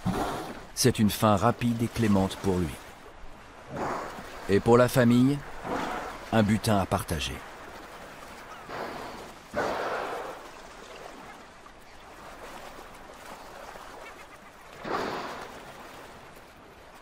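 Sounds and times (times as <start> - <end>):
soft wash of water: 0.0 - 17.0
whale breathy exhalation: 8.7 - 10.4, 14.8 - 15.5.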